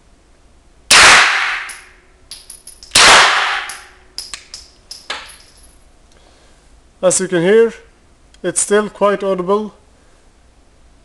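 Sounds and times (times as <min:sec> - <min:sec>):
suppressed pistol shots: 0:00.9 - 0:01.9, 0:02.9 - 0:04.6
light metallic clinks: 0:01.7 - 0:03.0, 0:03.7 - 0:05.8.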